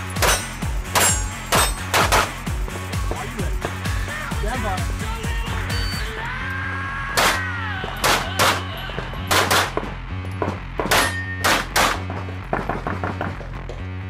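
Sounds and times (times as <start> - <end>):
background music with bass line: 0.0 - 14.0
handgun shots: 0.1 - 2.4, 7.2 - 8.7, 9.3 - 9.9, 10.9 - 12.2.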